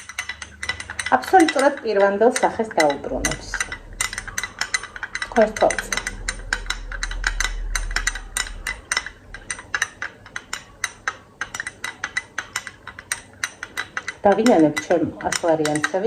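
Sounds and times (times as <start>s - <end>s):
low hum: 0.4s - 12.4s.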